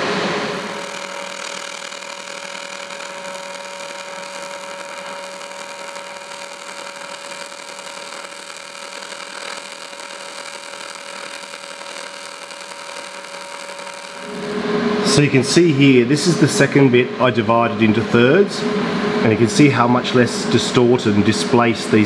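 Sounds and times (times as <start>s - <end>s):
welding arc buzzing: 0.0s - 15.8s.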